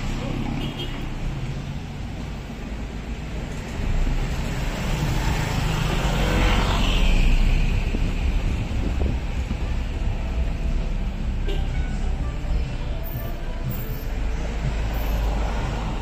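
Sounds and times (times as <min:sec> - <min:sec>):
low traffic rumble: 0:00.0 - 0:16.0
vehicle passing by: 0:04.1 - 0:09.3.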